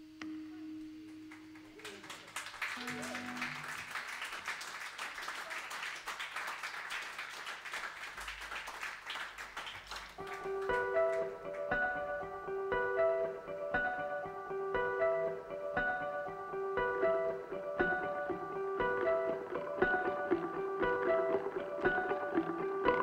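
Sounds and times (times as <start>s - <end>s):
audience applauding: 1.3s - 11.8s
plucked guitar notes: 10.4s - 23.0s.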